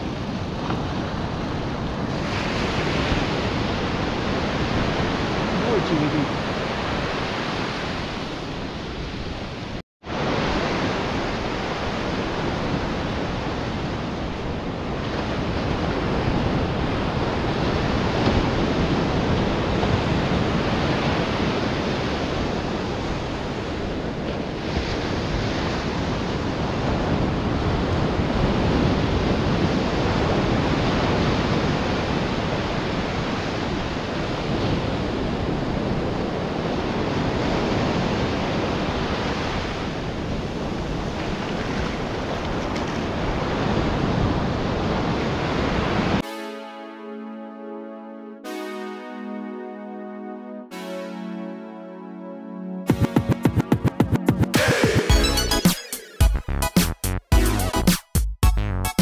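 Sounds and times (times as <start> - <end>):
wind on microphone: 0.0 - 46.2
ocean surf breaking: 0.0 - 47.4.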